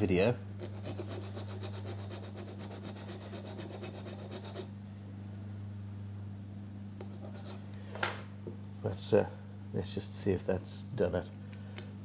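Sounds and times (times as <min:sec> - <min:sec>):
file rasping on metal: 0:00.6 - 0:04.7.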